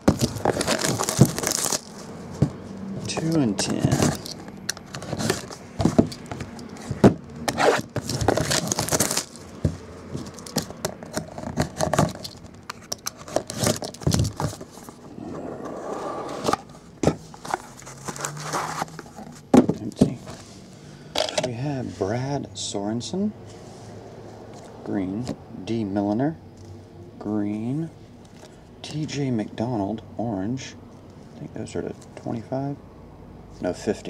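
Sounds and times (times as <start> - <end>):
wrapping rustling and tearing: 0.0 - 2.1, 3.0 - 6.9, 7.6 - 9.5, 10.2 - 12.5, 17.3 - 19.4
plastic card holders scraping and clicking: 0.0 - 14.9.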